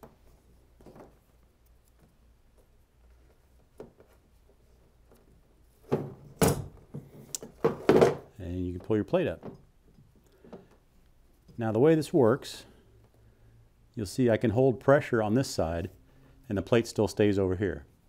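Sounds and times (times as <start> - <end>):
faint handling: 0.0 - 11.7.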